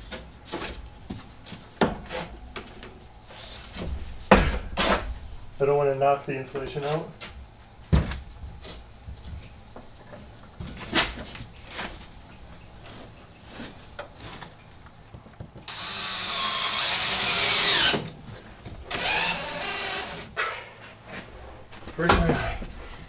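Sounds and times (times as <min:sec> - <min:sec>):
cordless drill driving screw: 0:15.7 - 0:18.0, 0:18.9 - 0:20.2.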